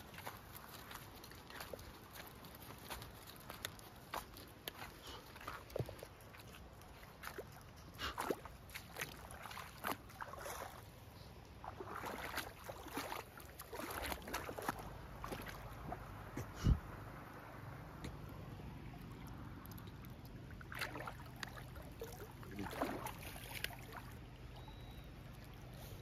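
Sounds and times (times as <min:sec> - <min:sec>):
footsteps crunching on gravel: 0:00.0 - 0:07.6
water sloshing and splashing: 0:00.0 - 0:16.5, 0:18.1 - 0:26.0.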